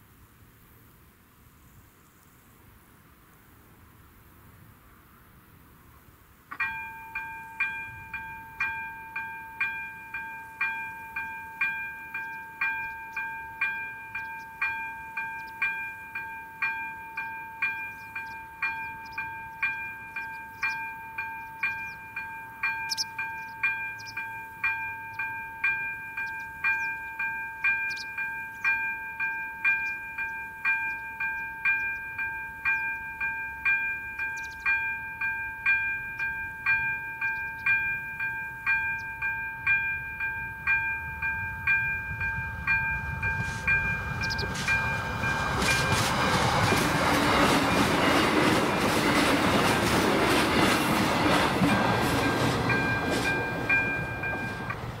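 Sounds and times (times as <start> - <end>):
continuous steady tone: 0.0 - 55.0
electronic level crossing bell: 6.6 - 46.8, 51.7 - 54.8.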